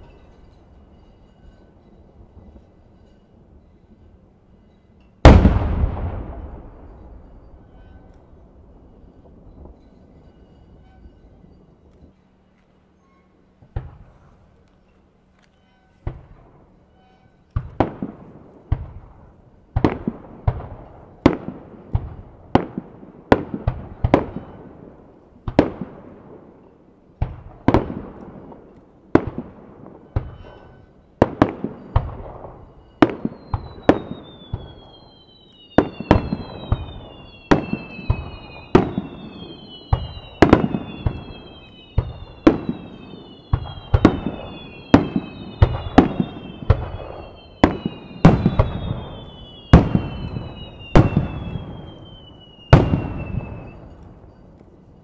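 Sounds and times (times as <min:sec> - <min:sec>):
firework shells bursting: 0:27.4 - 0:54.8
falling firework whistles: 0:30.0 - 0:54.6.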